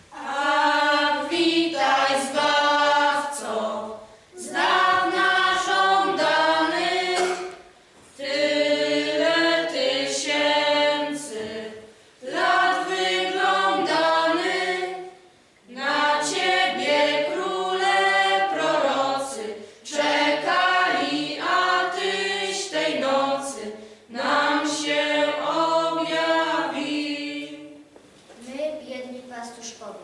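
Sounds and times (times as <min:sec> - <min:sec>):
choir singing a carol: 0:00.0 - 0:27.9.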